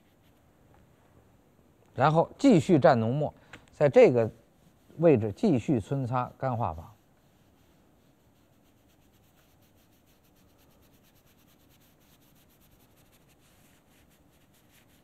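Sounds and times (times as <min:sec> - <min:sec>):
ink brush rubbing on paper: 0:00.0 - 0:00.5, 0:03.9 - 0:15.0.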